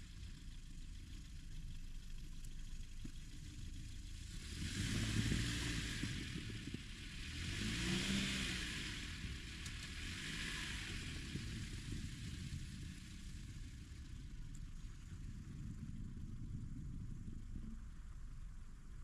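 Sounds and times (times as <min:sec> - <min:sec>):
car engine revving: 0:04.2 - 0:13.7.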